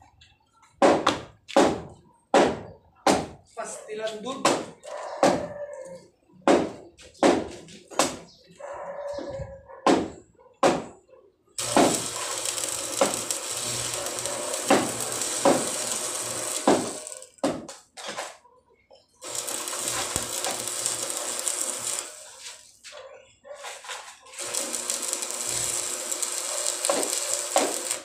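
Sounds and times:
arc welding with pops: 0:11.6 - 0:17.8, 0:19.2 - 0:22.8, 0:23.8 - 0:28.0.

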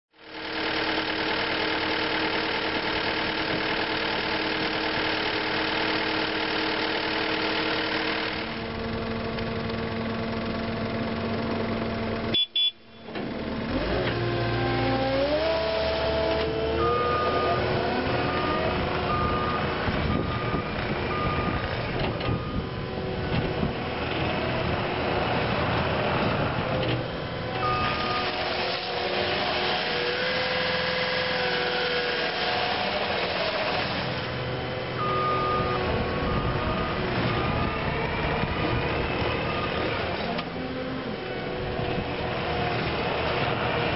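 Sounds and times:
diesel engine revving: 0:00.2 - 0:43.9
backup alarm beeping: 0:12.3 - 0:13.1, 0:16.8 - 0:21.7, 0:35.0 - 0:37.9.

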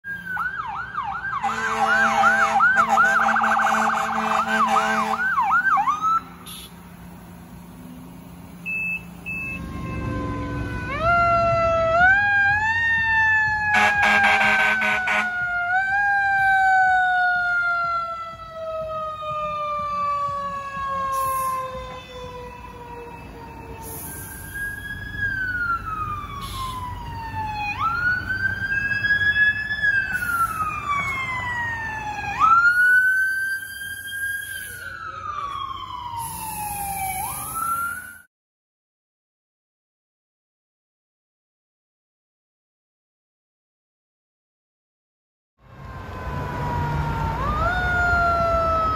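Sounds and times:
air horn blast: 0:01.4 - 0:05.3, 0:13.7 - 0:15.4
electronic siren yelping: 0:08.7 - 0:38.3, 0:46.3 - 0:48.9.

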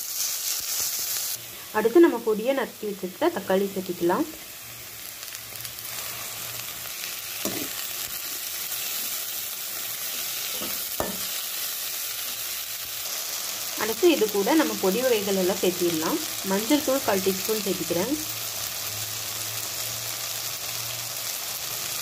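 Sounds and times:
vegetables sizzling in hot oil: 0:00.0 - 0:22.0
spatula knocking against pan: 0:10.6 - 0:11.3.

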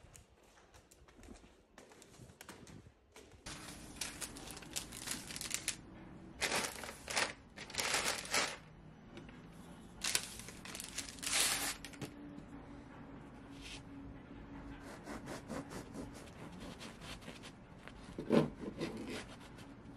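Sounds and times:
plastic and paper bags crinkling: 0:03.5 - 0:05.8, 0:06.4 - 0:08.7, 0:10.0 - 0:12.0.

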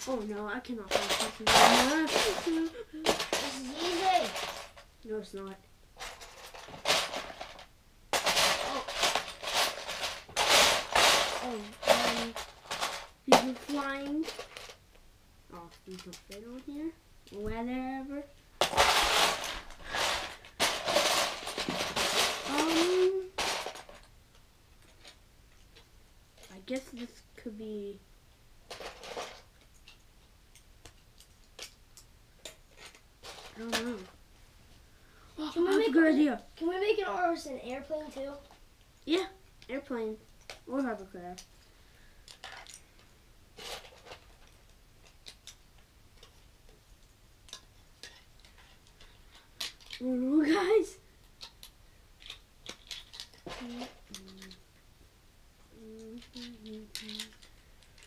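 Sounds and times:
plastic bricks clattering: 0:00.0 - 0:14.8, 0:18.6 - 0:24.1, 0:28.7 - 0:30.0, 0:30.9 - 0:34.1, 0:42.3 - 0:42.8, 0:43.6 - 0:45.6, 0:47.5 - 0:50.2, 0:51.4 - 0:54.6, 0:55.8 - 0:58.0
plastic bricks clicking together: 0:42.3 - 0:42.8, 0:47.4 - 0:50.1, 0:51.3 - 0:54.6, 0:55.8 - 0:58.0.

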